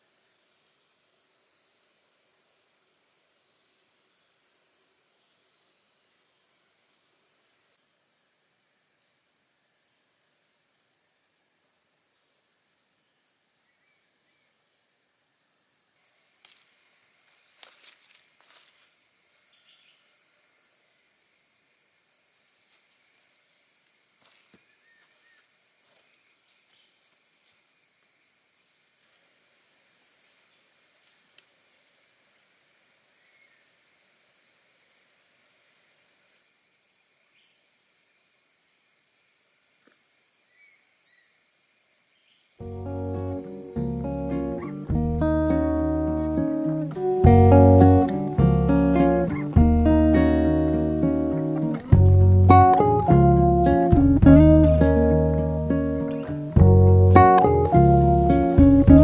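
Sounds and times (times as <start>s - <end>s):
insects chorus: 0.0s - 59.0s
rustling in dry leaves: 16.4s - 19.8s
faint click: 31.0s - 31.5s.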